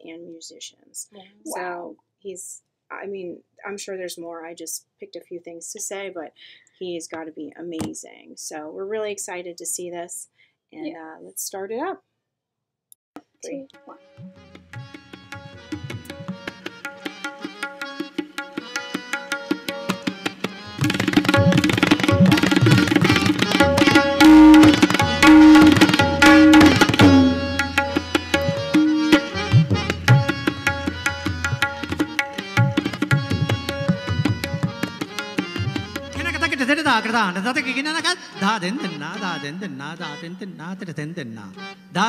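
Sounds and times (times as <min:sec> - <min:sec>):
tabla playing: 0:13.4 - 0:40.2.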